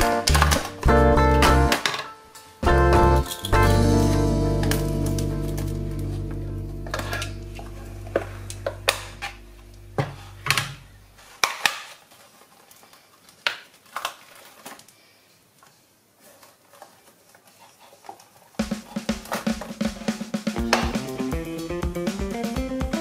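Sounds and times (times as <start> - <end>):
background music: 0.0 - 10.8, 19.3 - 23.0.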